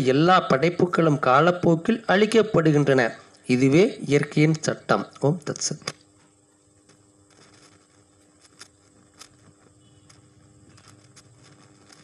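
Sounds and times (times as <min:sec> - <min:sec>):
faint steady hum: 0:00.0 - 0:12.0
soft clicks and rustles: 0:05.9 - 0:12.0.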